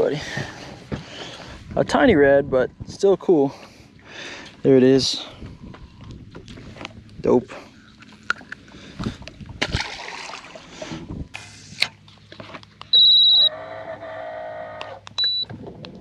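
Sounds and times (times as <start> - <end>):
high-pitched electronic beep: 12.9 - 13.5.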